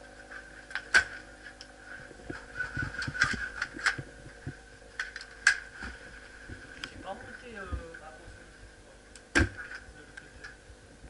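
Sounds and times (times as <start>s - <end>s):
steady high hum: 0.0s - 11.0s
gear rustling: 1.8s - 6.9s.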